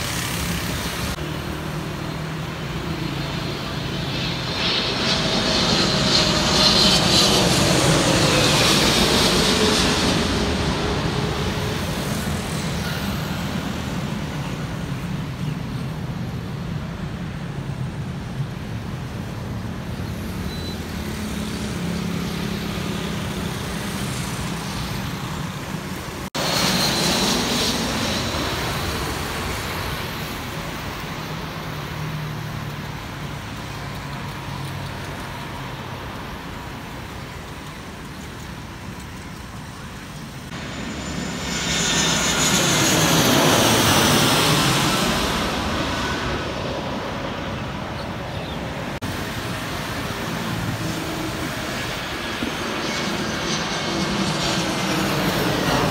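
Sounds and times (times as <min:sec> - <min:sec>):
road traffic passing: 0:00.0 - 0:55.9.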